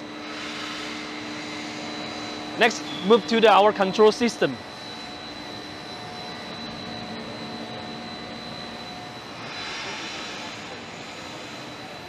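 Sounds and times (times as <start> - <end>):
machinery drone and hiss: 0.0 - 12.0
thin high whine: 0.0 - 12.0.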